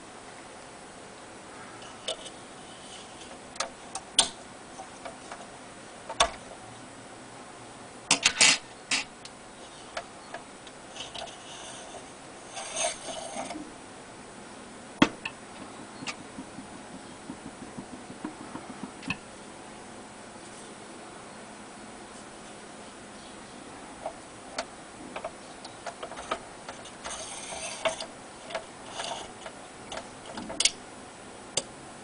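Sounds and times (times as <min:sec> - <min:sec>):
hard plastic parts clicking: 0:24.0 - 0:30.8.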